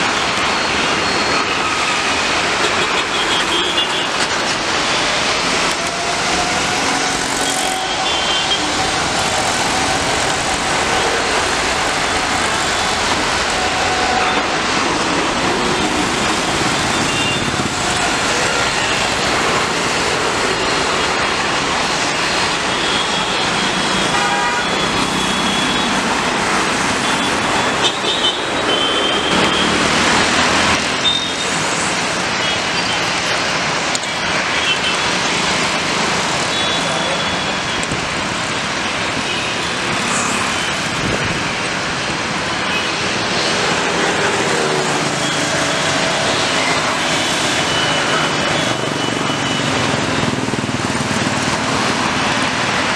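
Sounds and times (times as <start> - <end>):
jet engines roaring: 0.0 - 52.9
road traffic: 0.0 - 52.9
vehicle horn toots: 24.1 - 25.9.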